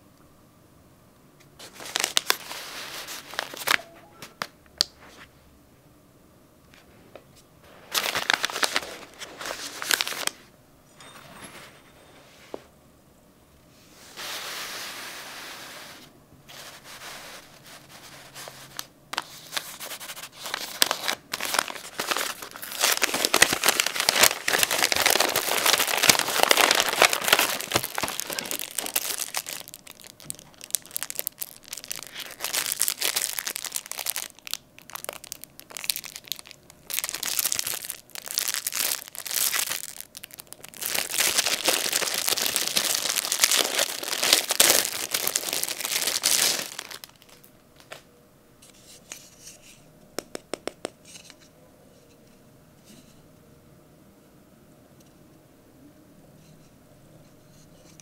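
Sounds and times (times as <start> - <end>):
plastic bag crinkling: 1.6 - 3.8, 7.7 - 10.5, 18.2 - 48.0
wrapping paper crumpling: 1.6 - 3.8, 7.7 - 10.5, 16.5 - 48.0.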